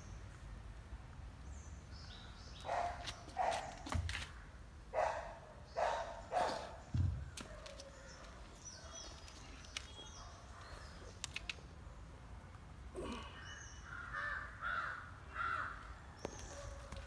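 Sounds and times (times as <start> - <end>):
crows cawing: 13.8 - 15.8.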